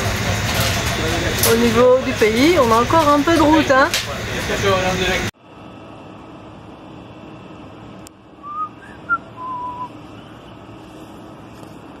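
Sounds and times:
steady background hum: 0:00.0 - 0:12.0
person whistling: 0:08.4 - 0:09.9.

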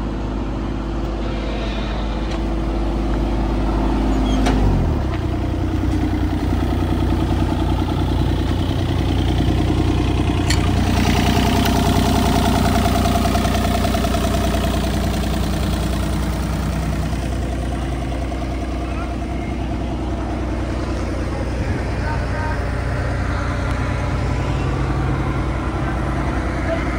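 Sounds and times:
diesel engine idling: 0:00.0 - 0:26.9
higher steady tone: 0:10.2 - 0:26.9.

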